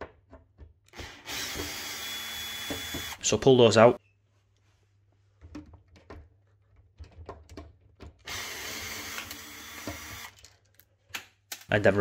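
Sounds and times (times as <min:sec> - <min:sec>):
cordless drill running: 0:00.9 - 0:03.2, 0:08.3 - 0:10.4
handling clicks and knocks: 0:05.4 - 0:08.3.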